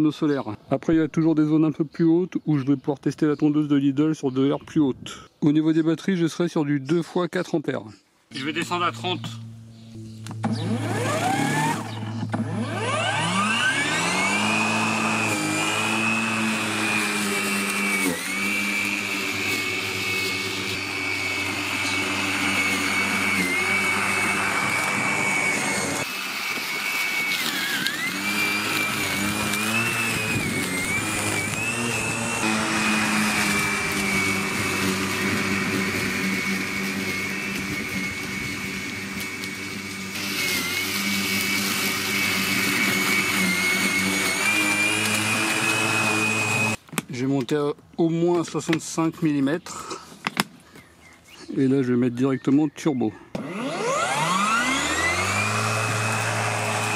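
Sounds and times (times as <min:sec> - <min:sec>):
lawn mower motor whine: 0:08.4 - 0:46.9, 0:53.3 - 0:56.9.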